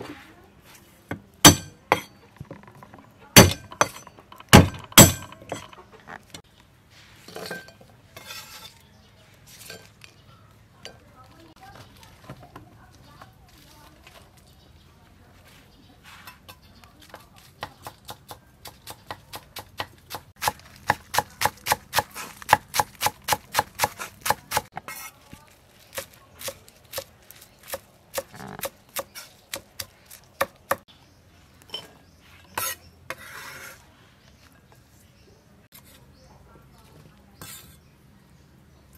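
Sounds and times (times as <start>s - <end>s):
cleaver chopping on wooden block: 1.1s - 2.1s, 3.4s - 5.6s, 17.6s - 24.7s.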